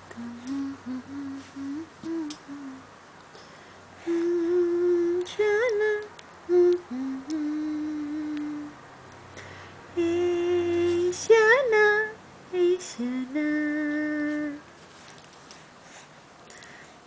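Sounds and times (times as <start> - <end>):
woman humming: 0.0 - 2.9, 4.0 - 8.7.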